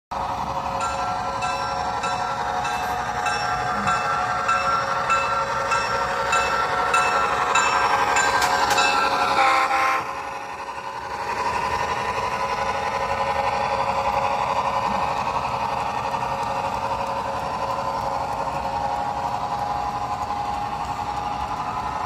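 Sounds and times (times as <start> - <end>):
train passing: 0.1 - 22.0
bell ringing: 0.7 - 9.4
locomotive horn: 9.2 - 10.2.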